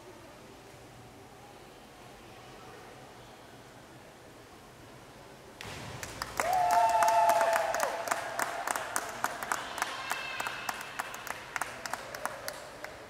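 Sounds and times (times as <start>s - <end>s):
spectators applauding: 6.0s - 13.0s
cheering shout: 6.4s - 11.0s.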